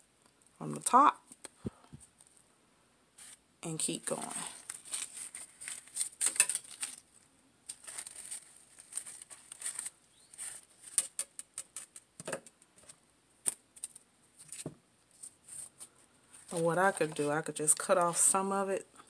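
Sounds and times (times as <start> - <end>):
fabric flowers rustling: 3.2 - 11.0, 14.4 - 18.5.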